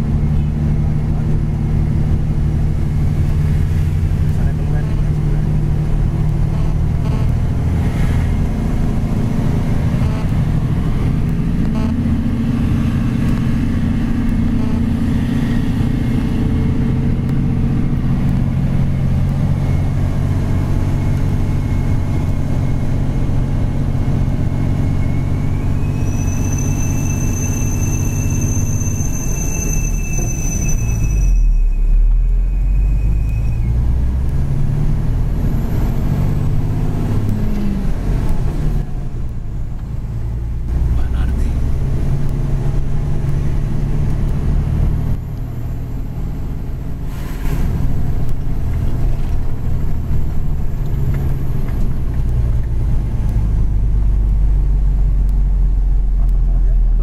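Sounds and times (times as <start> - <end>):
deep rumble: 0.0 - 57.0
diesel truck engine under load: 0.0 - 57.0
high whine: 8.6 - 34.5.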